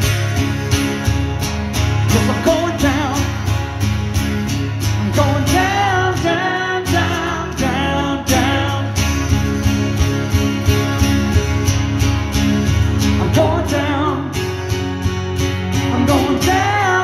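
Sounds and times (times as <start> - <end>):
acoustic guitar strumming: 0.0 - 17.0
man singing: 2.1 - 3.5, 5.0 - 9.2, 13.1 - 14.6, 15.8 - 17.0.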